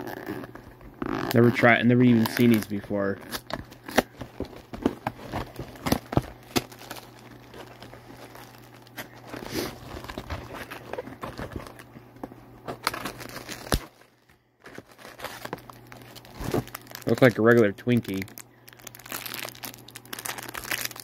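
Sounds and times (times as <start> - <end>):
cellophane crinkling: 0.0 - 21.0
cardboard box being opened: 9.2 - 11.8.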